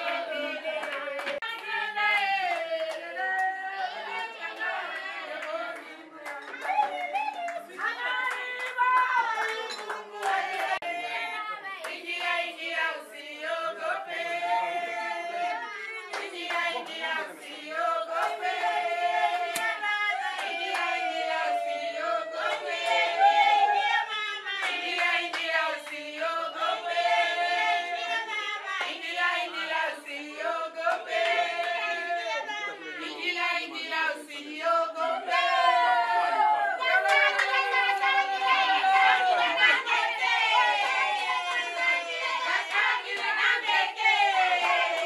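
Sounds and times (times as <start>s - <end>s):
group of people singing: 0.0s - 45.0s
hand clapping: 0.8s - 3.6s, 5.4s - 10.8s, 19.5s - 20.9s, 24.6s - 26.0s.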